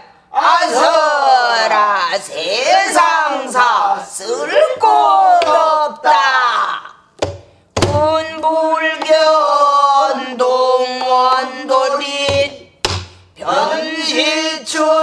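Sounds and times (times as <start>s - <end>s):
woman singing: 7.9s - 9.4s.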